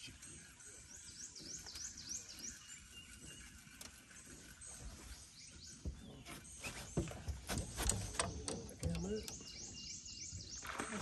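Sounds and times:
small bird chirping: 0.0 - 7.4.

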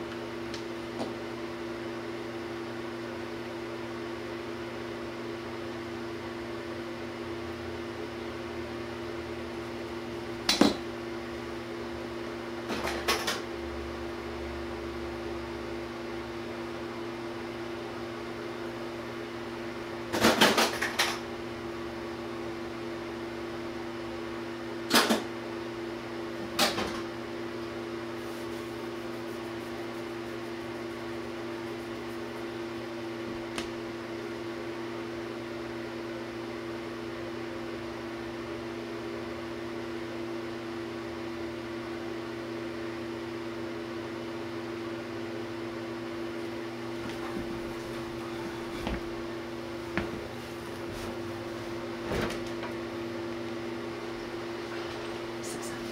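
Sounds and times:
steady hum: 21.0 - 36.8, 45.5 - 55.9.

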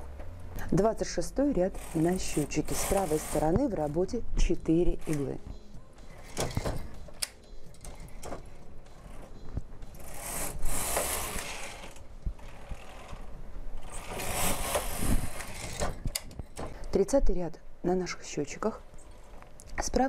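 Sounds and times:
knitting machine carriage rattling: 0.7 - 5.4, 6.1 - 9.3, 9.9 - 17.2.

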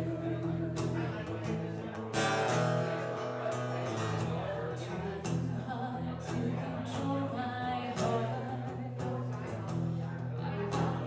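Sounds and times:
woman singing into a microphone: 0.0 - 1.6, 4.6 - 9.4, 10.4 - 11.0
strummed acoustic guitar: 0.0 - 11.0.

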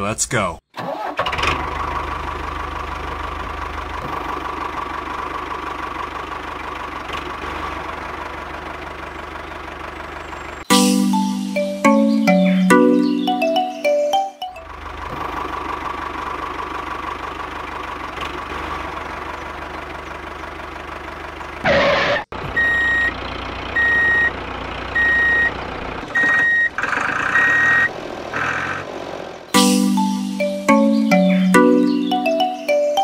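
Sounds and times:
vehicle engine idling: 1.6 - 10.7, 14.6 - 21.8, 22.4 - 29.5
reversing alarm beeping: 22.6 - 23.2, 23.8 - 24.3, 25.0 - 25.5, 26.2 - 26.7.

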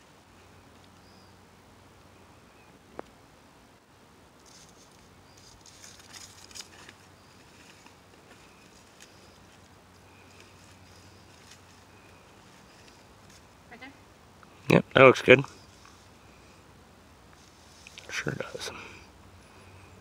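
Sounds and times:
strap scraping and rustling: 4.4 - 13.5.

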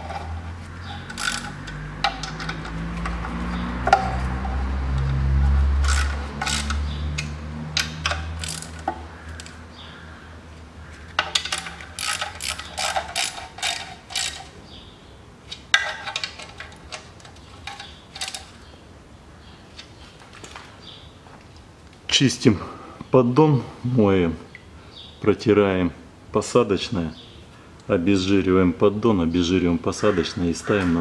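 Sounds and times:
socket ratchet clicking: 0.0 - 2.8, 5.8 - 9.6, 11.2 - 14.6.

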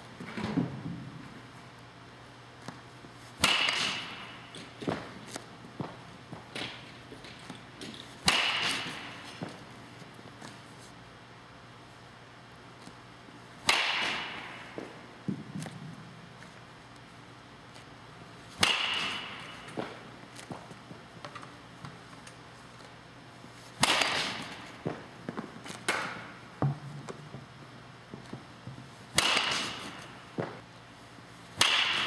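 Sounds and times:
bat cracking ball: 3.3 - 9.8, 13.6 - 16.5, 18.5 - 22.0, 23.7 - 27.5, 29.1 - 30.6, 31.6 - 32.0.

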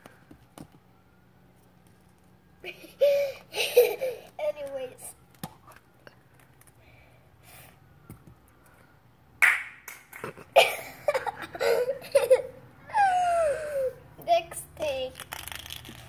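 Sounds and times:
child giggling and laughing: 2.6 - 4.4, 10.3 - 14.0.

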